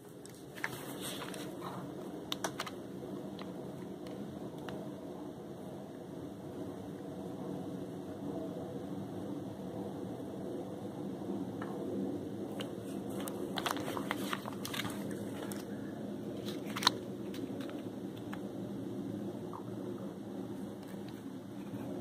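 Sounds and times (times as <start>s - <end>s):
steady low rumble: 0.0s - 22.0s
small clicks and crackles: 0.2s - 4.8s, 12.6s - 18.5s.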